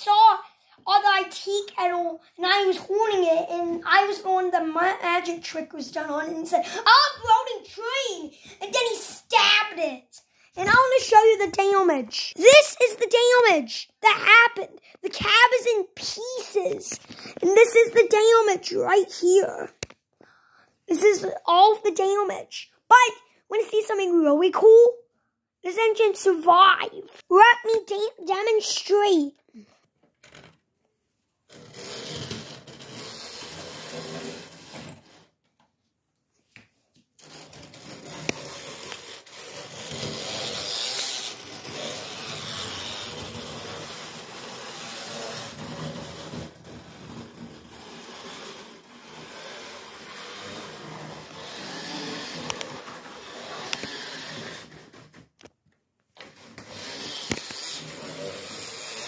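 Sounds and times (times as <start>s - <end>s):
electric motor whirring: 47.3s - 55.0s, 56.6s - 59.0s.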